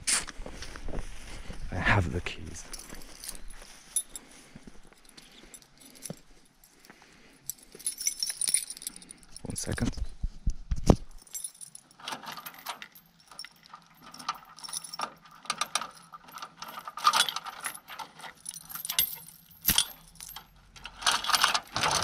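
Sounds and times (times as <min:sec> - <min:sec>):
keys jangling: 0:02.6 - 0:09.9, 0:11.1 - 0:22.0
metal gate chain rattling: 0:07.4 - 0:09.8, 0:11.2 - 0:22.0
metal clicks and clanks: 0:11.1 - 0:22.0.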